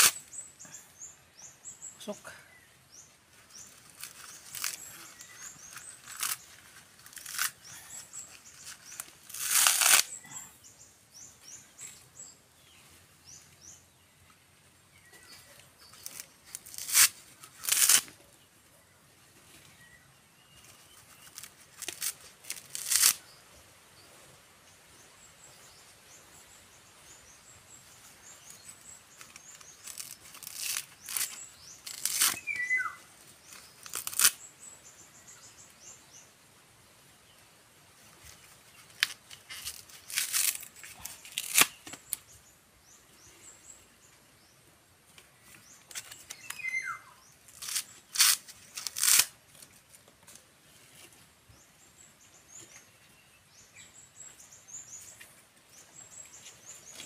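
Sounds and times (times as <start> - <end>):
coconut husk tearing: 0.0 - 0.4, 3.4 - 10.4, 15.4 - 18.3, 20.5 - 23.2, 28.4 - 34.5, 38.2 - 42.2, 45.5 - 51.2
birds chirping faintly: 0.0 - 57.0.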